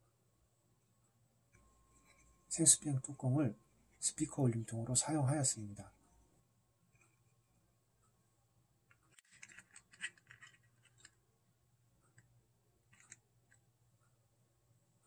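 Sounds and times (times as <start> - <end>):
clicks and scrapes of handling wires: 8.9 - 11.2, 12.9 - 13.6.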